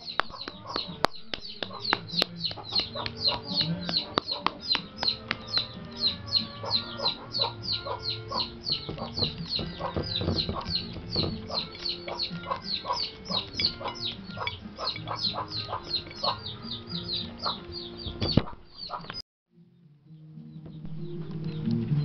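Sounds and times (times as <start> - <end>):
chickens clucking: 0.0 - 19.2
chicks peeping: 0.0 - 19.2.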